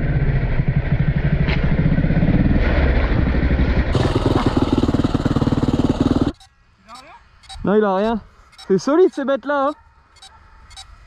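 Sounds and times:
dirt bike engine running: 0:00.0 - 0:07.6.

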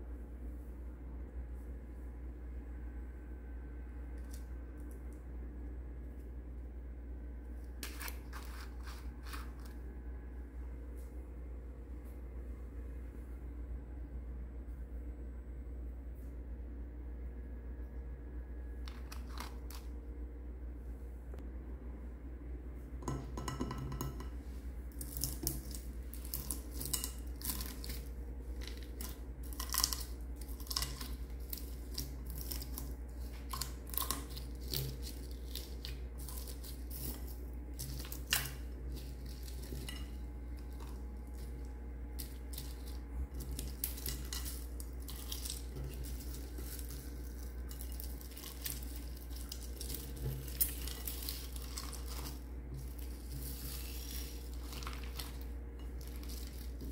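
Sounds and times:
low hum: 0:00.0 - 0:56.9
crackles and clicks of slime: 0:24.9 - 0:56.9.

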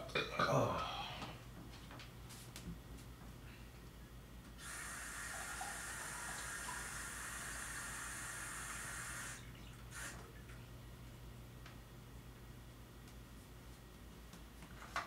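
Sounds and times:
water running from a tap: 0:04.6 - 0:10.3.

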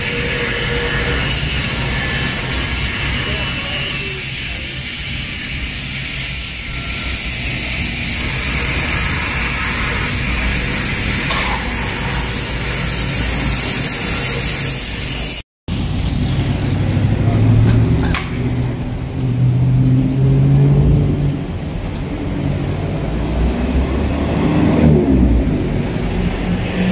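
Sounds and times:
vehicles passing: 0:15.7 - 0:26.9.

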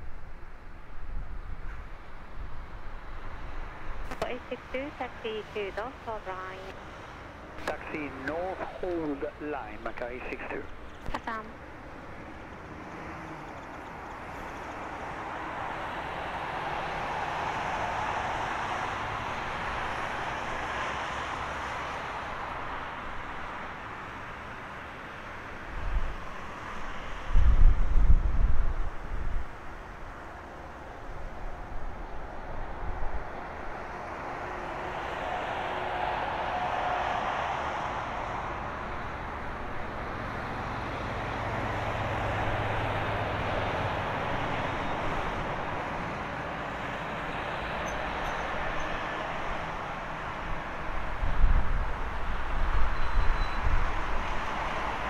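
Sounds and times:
jet engines rushing hiss: 0:03.3 - 0:10.9, 0:30.3 - 0:51.2
jet engines idling: 0:04.1 - 0:12.8
wind rumble on microphone: 0:25.7 - 0:30.1, 0:50.4 - 0:55.0.

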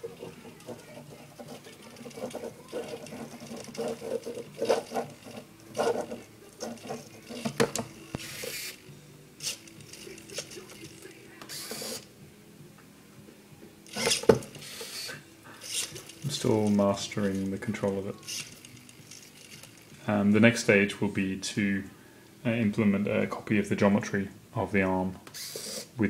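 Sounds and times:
servos whirring and buzzing: 0:11.5 - 0:12.1, 0:13.9 - 0:16.3, 0:25.4 - 0:25.9.

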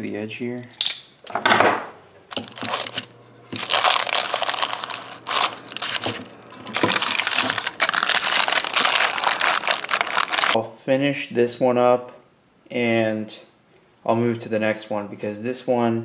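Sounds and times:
parchment paper crinkling: 0:02.3 - 0:10.6.

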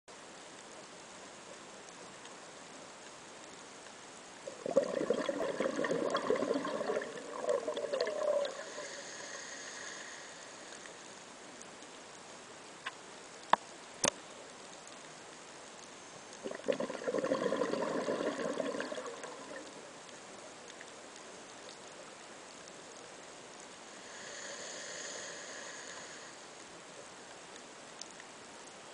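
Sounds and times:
air bubbling underwater: 0:04.5 - 0:08.6, 0:16.4 - 0:19.7.

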